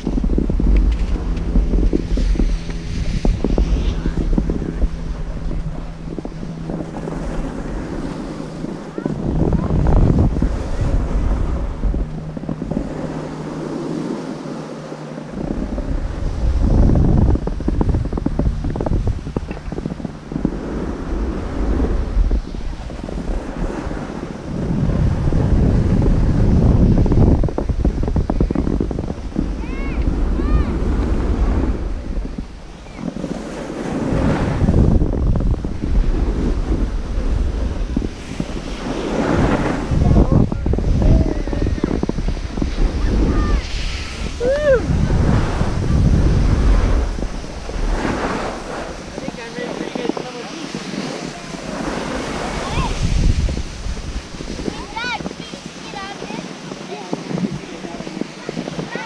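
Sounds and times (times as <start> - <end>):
snowboard sliding on snow: 0.0 - 4.9, 20.4 - 59.0
wind buffeting microphone: 0.0 - 59.0.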